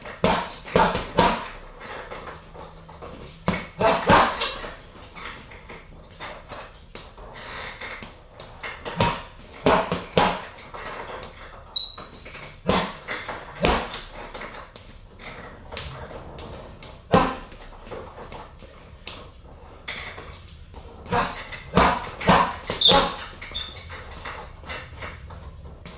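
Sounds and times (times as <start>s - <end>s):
punches thudding on heavy bag: 0.2s - 1.5s, 3.4s - 4.5s, 9.0s - 10.5s, 12.6s - 14.1s, 17.0s - 17.6s, 21.1s - 23.2s
brief high squeak: 11.8s - 12.4s.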